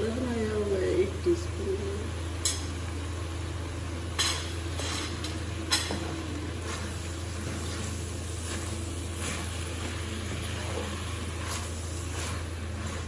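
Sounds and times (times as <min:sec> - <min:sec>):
vegetables sizzling: 0:00.0 - 0:13.0
spatula stirring in a wok: 0:04.3 - 0:13.0.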